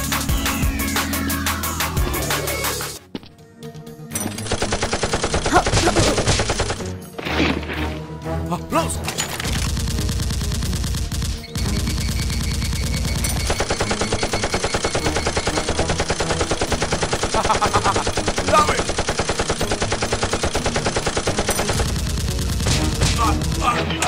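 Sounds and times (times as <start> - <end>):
automatic gunfire: 4.4 - 6.8, 9.4 - 23.8.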